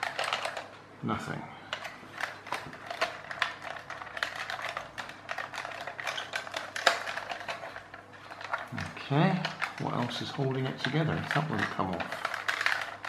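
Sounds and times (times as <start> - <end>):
plastic toy clicking and knocking: 0.0 - 0.7, 1.7 - 13.0.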